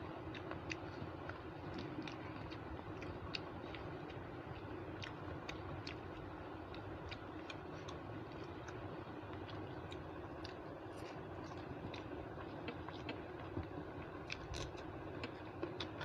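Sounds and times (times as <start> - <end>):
person chewing rice: 0.0 - 16.0
steady low hum: 0.0 - 16.0.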